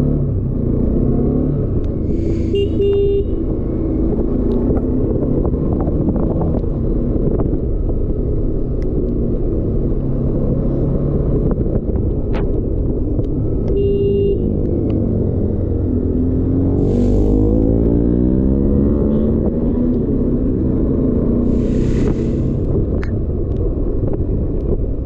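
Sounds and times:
horn beeping: 2.2 - 3.4, 13.7 - 14.5.

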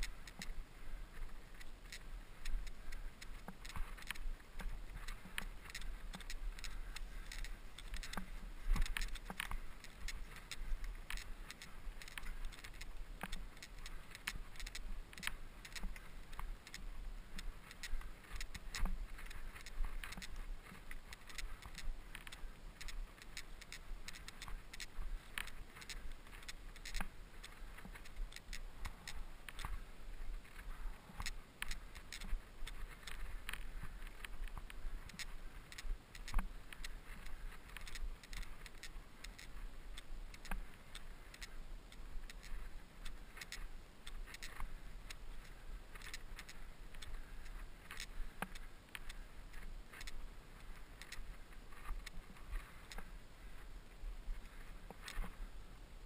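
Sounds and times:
low rumble of tyres on trail: 0.0 - 56.0
bike frame and chain rattling: 3.2 - 29.8.

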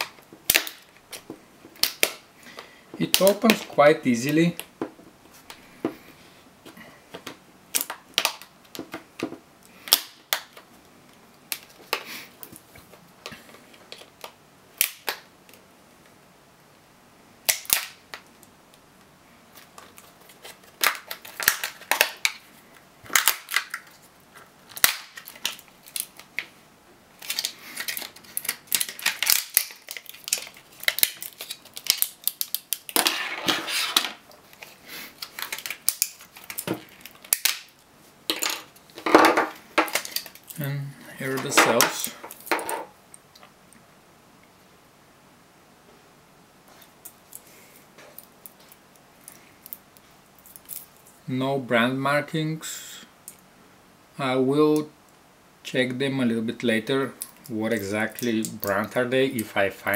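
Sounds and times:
plastic crackling and scraping: 19.5 - 26.6, 27.2 - 42.8.

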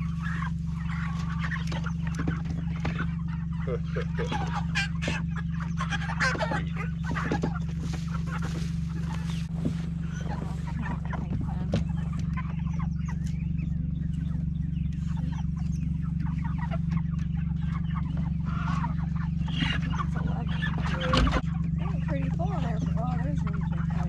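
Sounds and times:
chickens squawking and clucking: 0.0 - 24.0
steady low hum: 0.0 - 24.0.

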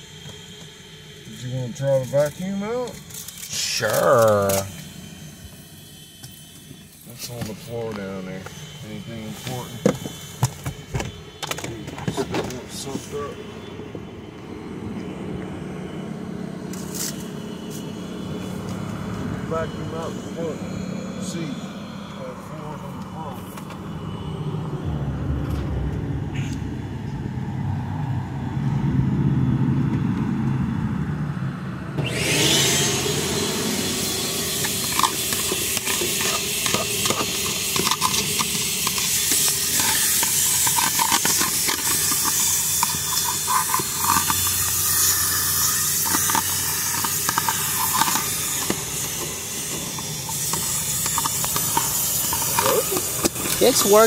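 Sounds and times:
vacuum hose hissing: 0.0 - 13.4, 32.0 - 54.0.

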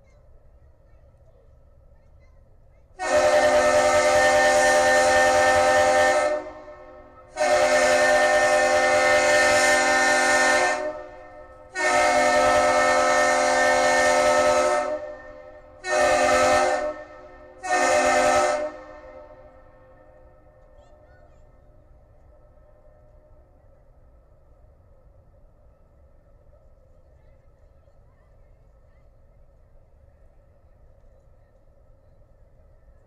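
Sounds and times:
ship horn blasts: 3.0 - 20.7.

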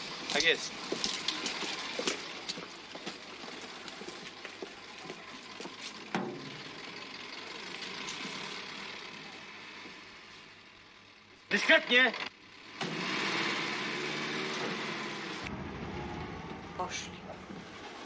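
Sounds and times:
footsteps: 0.0 - 6.4
car engine idling: 0.0 - 11.7, 12.3 - 12.8, 13.8 - 18.0.

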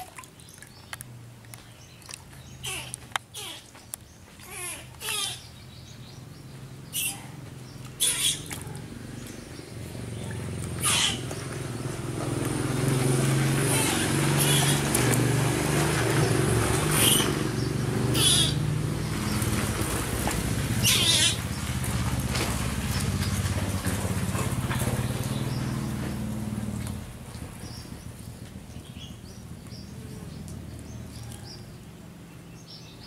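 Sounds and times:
motor engine running: 6.0 - 31.9.

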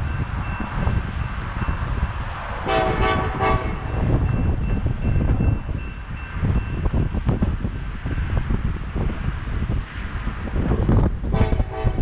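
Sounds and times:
steady low rumble: 0.0 - 12.0
distant locomotive air horn: 2.6 - 4.0, 11.3 - 12.0.

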